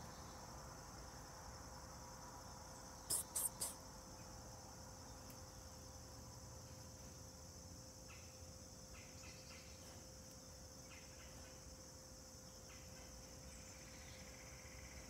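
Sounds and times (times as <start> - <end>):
insect chirring: 0.0 - 15.0
bird chirps: 3.1 - 3.8.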